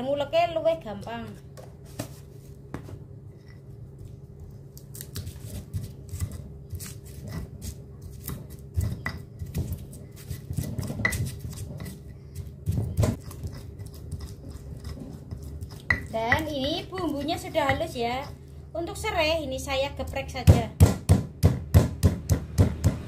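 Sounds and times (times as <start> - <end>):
stone pestle grinding in mortar: 5.2 - 18.5
stone pestle crushing strikes: 20.4 - 23.0.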